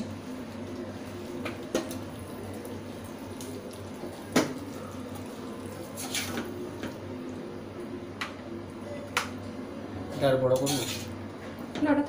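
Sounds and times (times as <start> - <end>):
spatula stirring in a pan: 0.4 - 7.1.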